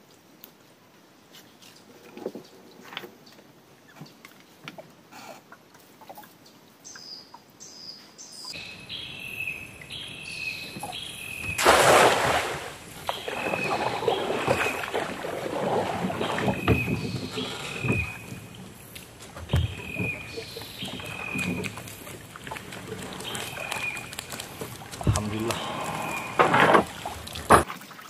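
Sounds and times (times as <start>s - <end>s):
bird chirping: 6.8s - 11.6s, 16.2s - 22.4s, 23.0s - 26.4s
water against boat hull: 8.7s - 28.0s.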